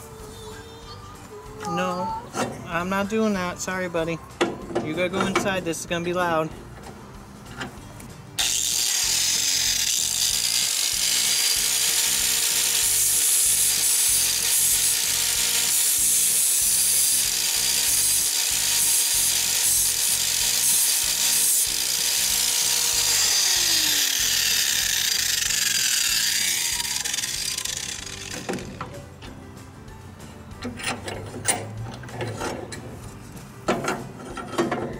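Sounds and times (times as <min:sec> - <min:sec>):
angle grinder grinding metal: 0:08.4 - 0:28.9.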